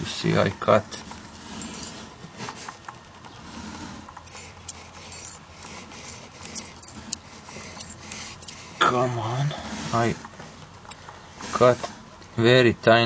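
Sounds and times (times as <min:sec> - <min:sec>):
handling clicks and rubbing: 0:01.0 - 0:09.0.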